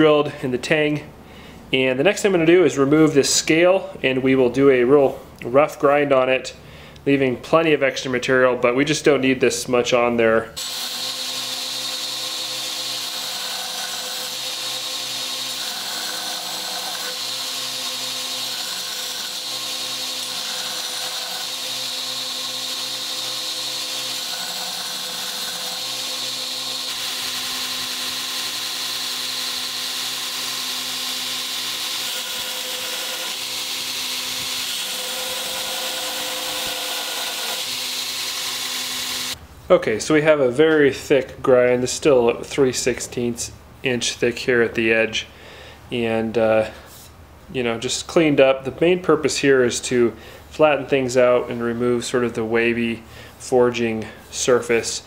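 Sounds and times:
belt grinder grinding steel: 10.6 - 39.4.

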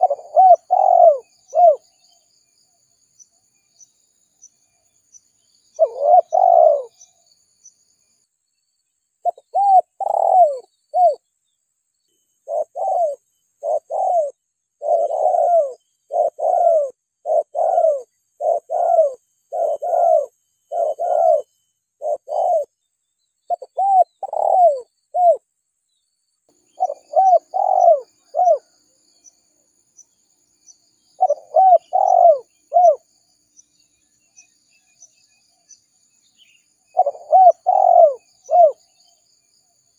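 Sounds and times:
dove cooing: 0.0 - 1.9, 5.8 - 7.1, 9.2 - 11.2, 12.4 - 22.7, 23.5 - 25.4, 26.8 - 28.7, 31.2 - 33.0, 36.9 - 39.0
faint high chirping: 0.0 - 39.9.

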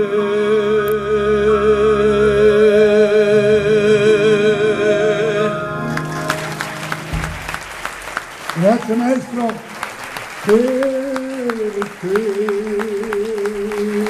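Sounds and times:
man singing with vibrato: 0.0 - 6.2, 10.4 - 14.0
musical accompaniment: 0.0 - 14.0
applause: 5.9 - 14.0.

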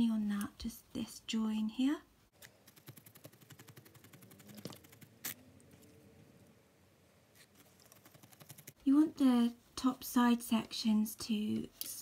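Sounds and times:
felting needle jabbing ticks: 2.4 - 5.4, 7.8 - 8.8.

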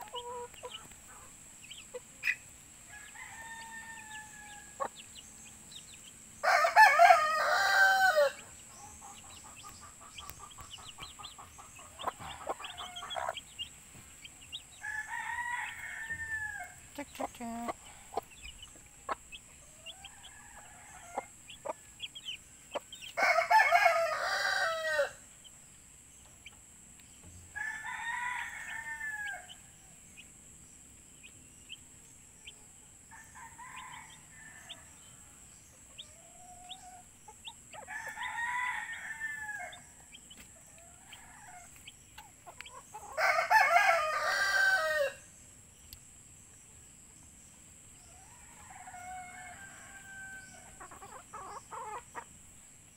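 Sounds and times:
chicks peeping: 0.0 - 27.6, 28.6 - 45.0, 45.8 - 52.7
roosters crowing: 2.8 - 5.0, 6.2 - 13.6, 14.4 - 25.3, 27.5 - 30.2, 33.0 - 41.8, 42.8 - 45.3, 48.0 - 52.2.

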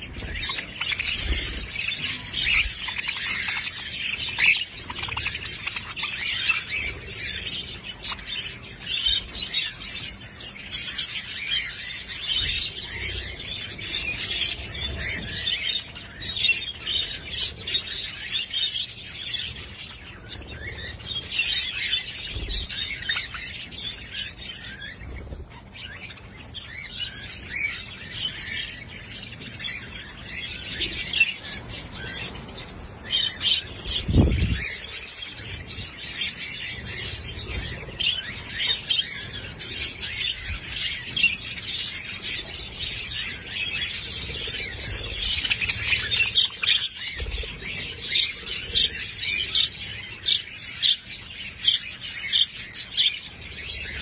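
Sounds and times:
flock of parakeets chattering: 0.0 - 54.0.

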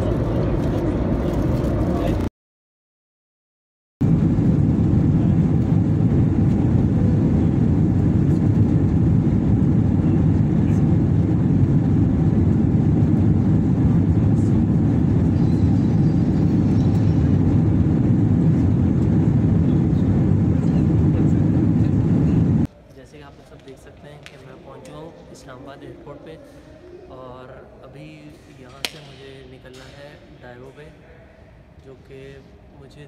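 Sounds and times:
jet cabin engine rumble: 0.0 - 2.3, 4.0 - 22.7.

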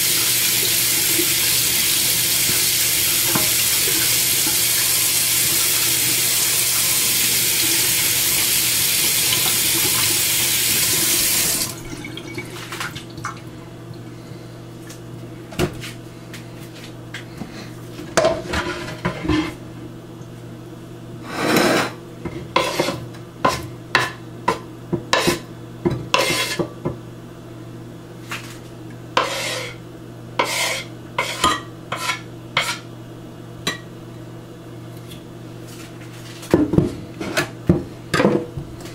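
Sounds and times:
faucet running into metal sink: 0.0 - 12.5.

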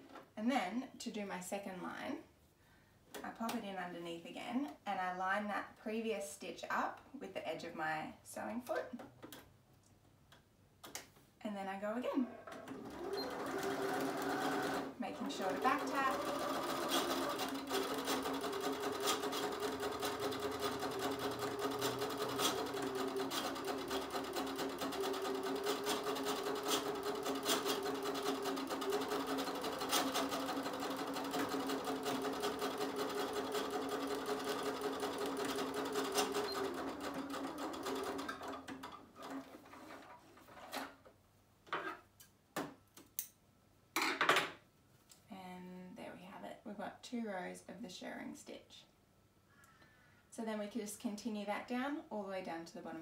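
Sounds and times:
electric sewing machine running: 12.4 - 39.4.

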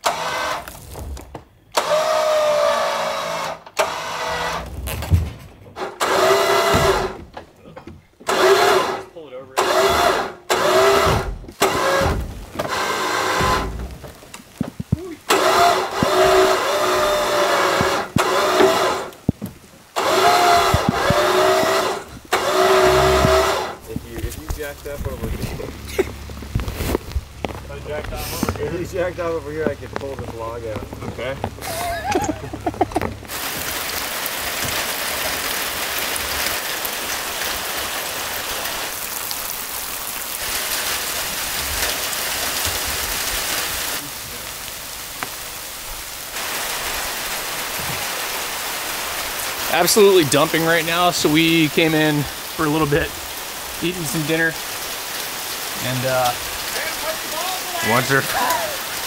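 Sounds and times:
electric winch whining under load: 0.0 - 1.1, 1.7 - 4.9, 5.8 - 7.3, 8.2 - 14.1, 15.3 - 19.2, 19.9 - 23.8
heavy rain pouring: 0.0 - 59.0
shed dragging over ground: 0.0 - 59.0.

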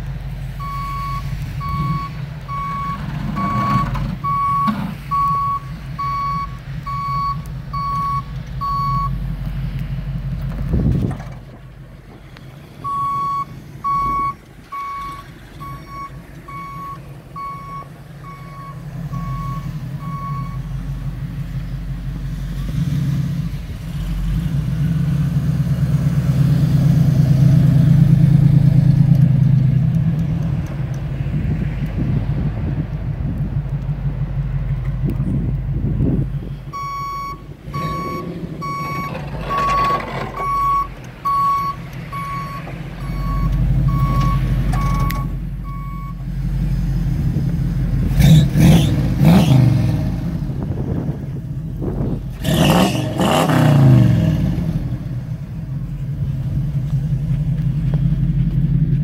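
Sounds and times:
truck engine running: 0.0 - 59.0
backup alarm beeping: 0.6 - 9.2, 12.8 - 20.6, 36.7 - 46.2.

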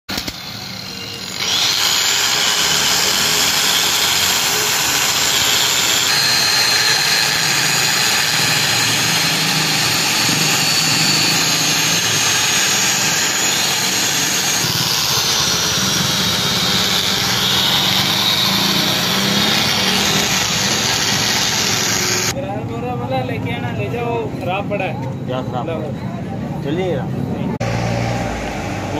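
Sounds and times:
angle grinder grinding steel: 0.1 - 22.4.

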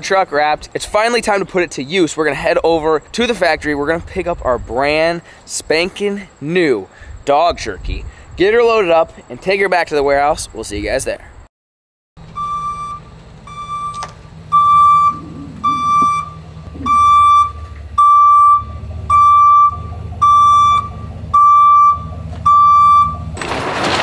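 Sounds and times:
truck reversing alarm beeping: 12.2 - 23.4
truck engine running low: 12.2 - 24.0.

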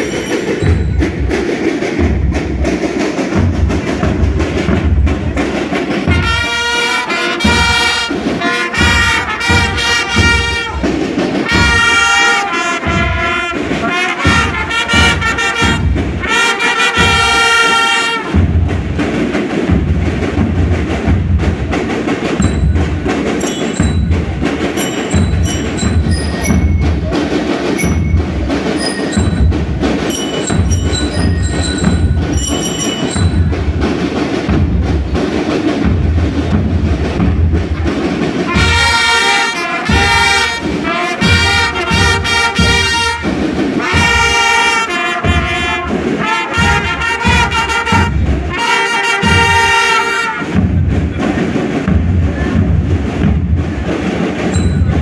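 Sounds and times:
drums beating: 0.0 - 55.0
trumpets playing melody: 6.0 - 18.4, 38.5 - 50.6.

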